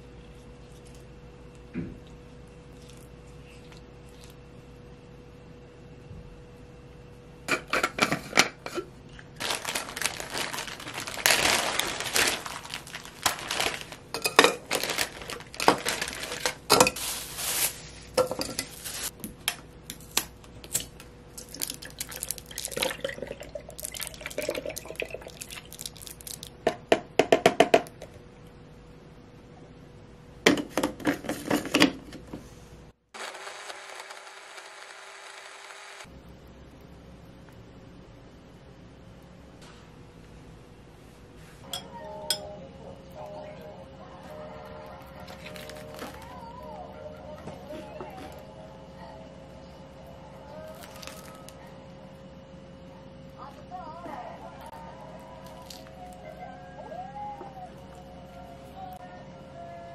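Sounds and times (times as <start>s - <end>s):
dishes and utensils clinking: 14.2s - 14.7s.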